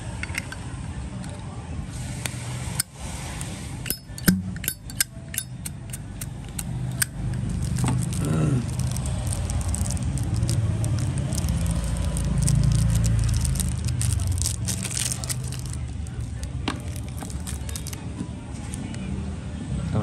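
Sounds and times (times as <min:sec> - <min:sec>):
lighter metallic clicks: 0:02.2 - 0:07.4
steady low rumble: 0:03.1 - 0:18.1.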